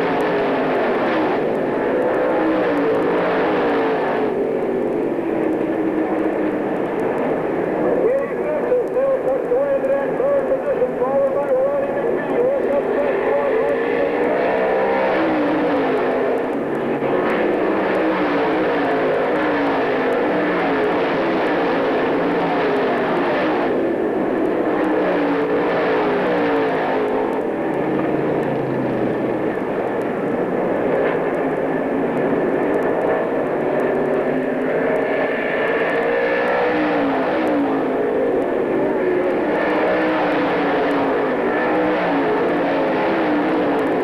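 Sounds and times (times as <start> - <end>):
race car engines at full throttle: 0.0 - 44.0.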